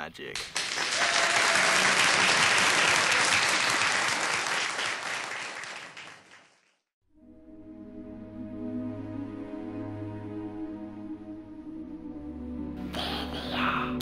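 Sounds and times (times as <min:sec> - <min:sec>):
audience applause: 0:00.4 - 0:06.8
soft ambient music: 0:07.1 - 0:14.0.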